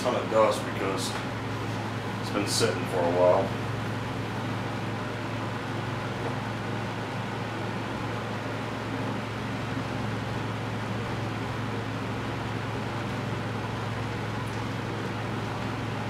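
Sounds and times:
fan air rushing: 0.0s - 16.0s
low motor hum: 0.0s - 16.0s.

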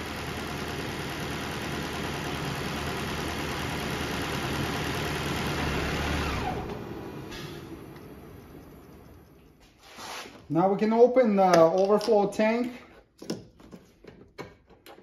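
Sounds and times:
car engine idling: 0.0s - 9.6s
engine winding down whine: 0.0s - 9.7s.

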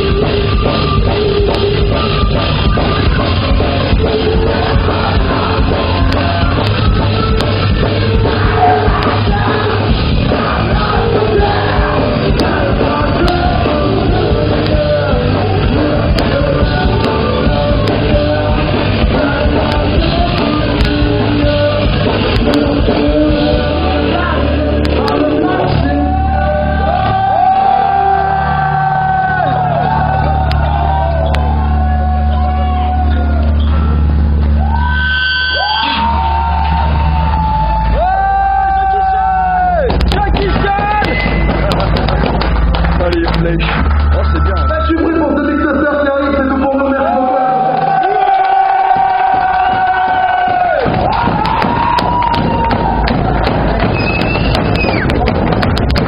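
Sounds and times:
drums: 0.0s - 46.7s, 47.6s - 56.0s
bass guitar: 0.0s - 56.0s
distorted electric guitars: 0.0s - 56.0s
shouted sung vocals: 8.1s - 33.4s.

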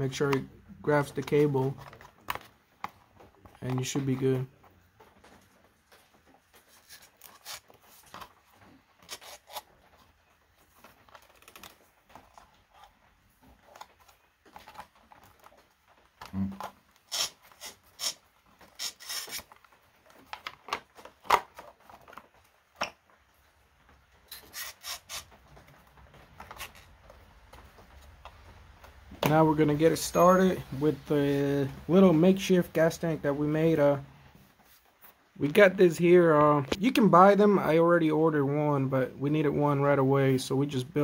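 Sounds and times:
plastic and rubber rubbing: 0.0s - 30.1s.

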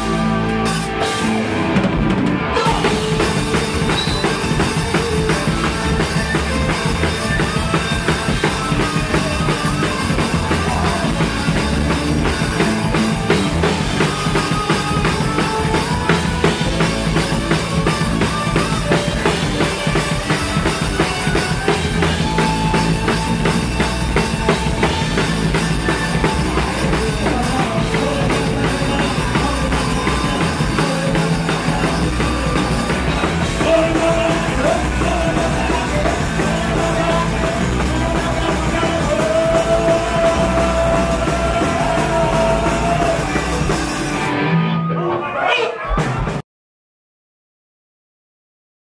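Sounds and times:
punk rock band playing live: 0.0s - 46.4s
bass drum and snare: 0.9s - 44.3s.

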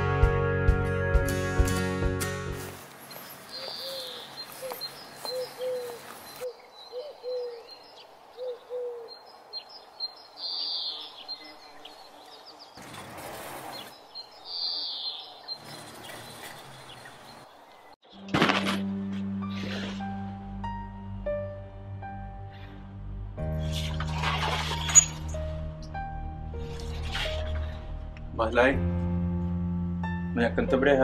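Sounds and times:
small birds chirping: 2.9s - 13.0s, 13.6s - 18.3s
dove cooing: 3.6s - 7.7s, 8.3s - 9.2s.

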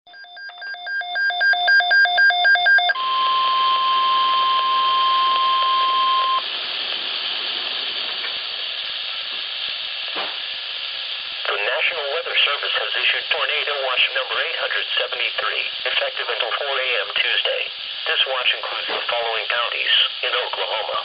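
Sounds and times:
steady warning alarm tone: 0.1s - 6.5s
rapid electronic beeping: 0.2s - 6.5s
radio static hiss: 3.0s - 21.0s.

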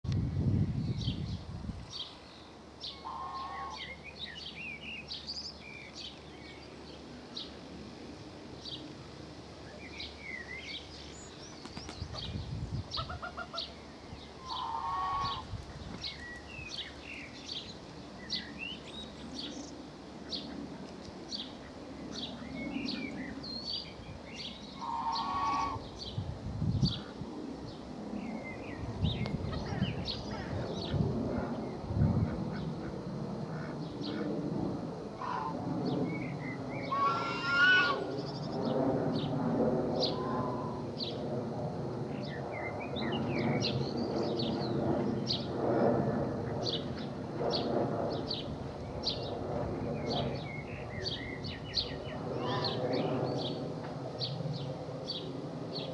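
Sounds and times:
small birds chirping: 0.8s - 7.6s, 9.6s - 34.3s, 46.5s - 55.9s
louder long bird call: 2.8s - 6.6s, 9.7s - 20.6s, 21.3s - 26.2s, 35.2s - 38.6s, 40.0s - 41.1s, 50.3s - 53.6s.

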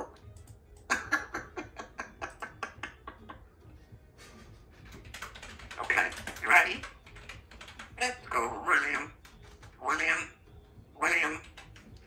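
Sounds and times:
parrot clicking rapidly: 4.8s - 10.3s, 11.0s - 12.0s.

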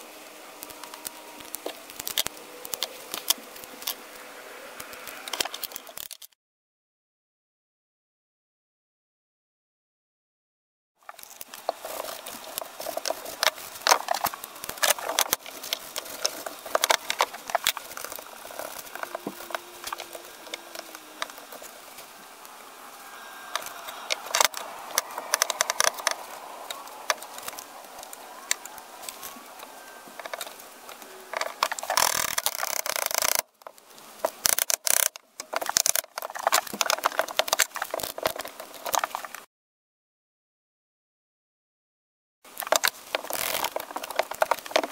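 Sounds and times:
rubbing or scraping: 11.1s - 33.5s.

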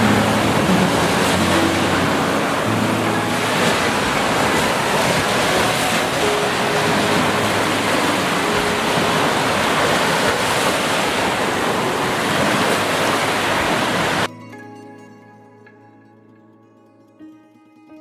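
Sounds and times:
waves washing up a beach: 0.0s - 14.3s
quiet music: 0.0s - 18.0s.

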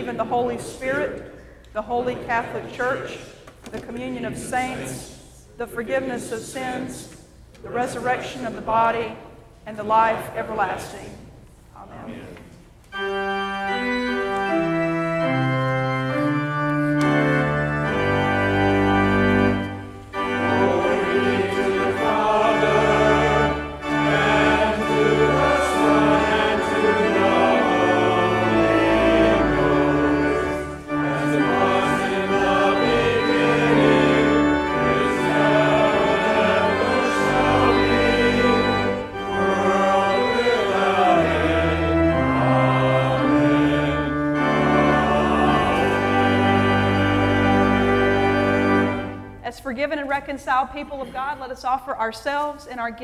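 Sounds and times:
church organ playing: 0.0s - 1.3s, 12.8s - 49.4s
congregation singing a hymn: 0.0s - 11.2s, 12.1s - 49.4s.

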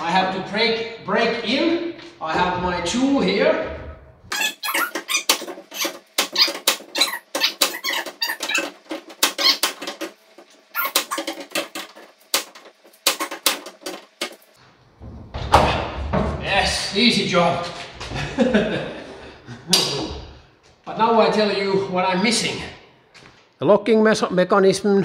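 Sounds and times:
tool squeaking and scraping on latch: 4.3s - 14.4s.

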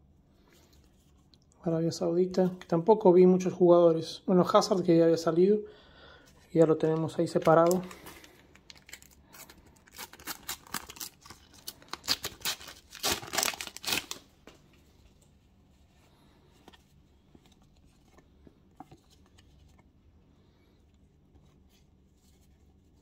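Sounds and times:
faint handling of stickers: 6.3s - 23.0s
packet being torn open: 6.8s - 14.3s.

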